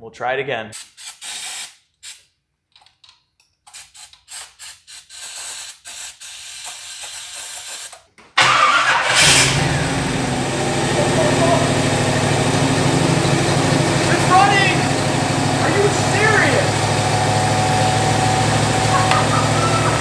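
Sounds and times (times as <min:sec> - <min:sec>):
car engine starting and running: 0:08.4 - 0:20.0.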